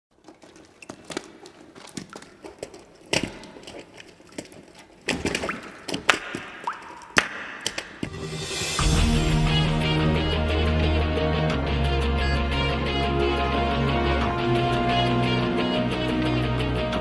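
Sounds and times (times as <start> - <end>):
sharp cracks: 0.3 - 8.4
music: 8.0 - 17.0.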